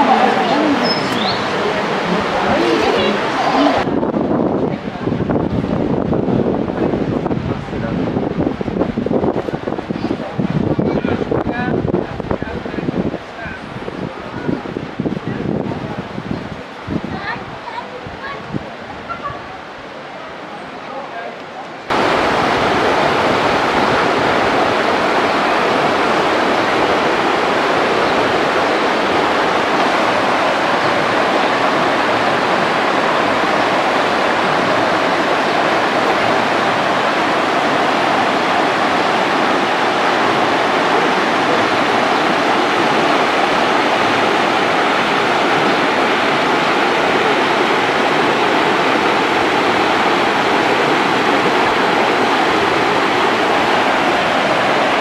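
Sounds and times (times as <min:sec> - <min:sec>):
river rushing over rocks: 0:00.0 - 0:55.0.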